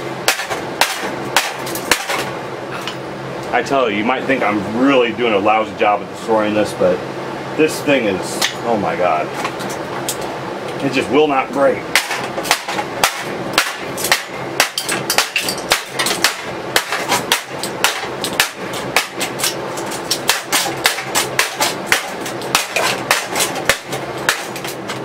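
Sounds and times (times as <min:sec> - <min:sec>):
plastic part struck repeatedly: 0:00.3 - 0:02.3, 0:11.9 - 0:25.0.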